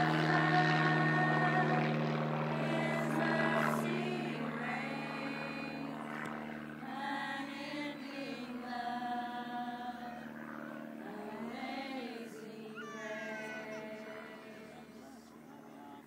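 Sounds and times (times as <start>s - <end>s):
women singing together: 0.0s - 5.9s, 6.8s - 10.4s, 11.0s - 16.0s.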